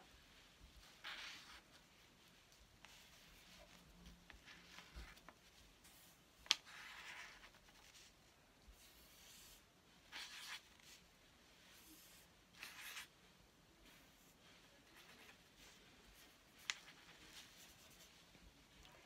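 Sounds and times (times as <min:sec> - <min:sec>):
marker scratching on paper: 0:02.8 - 0:05.2, 0:11.7 - 0:13.1.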